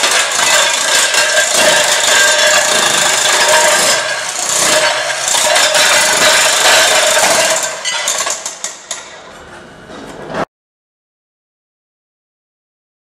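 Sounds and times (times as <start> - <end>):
chisel scraping tiles off concrete: 0.0 - 9.0
electric demolition hammer running: 0.0 - 9.1.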